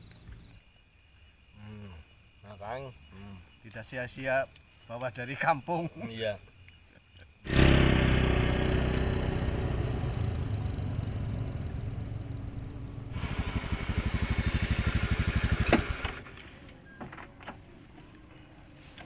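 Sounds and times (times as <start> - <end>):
motor scooter engine running: 7.5 - 16.3
engine with fast even pulsing: 7.5 - 16.4.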